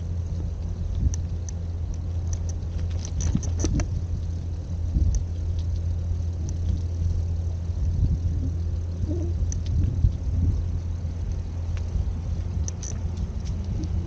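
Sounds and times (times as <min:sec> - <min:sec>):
car engine rumbling: 0:00.0 - 0:14.0
light ticks: 0:00.0 - 0:14.0.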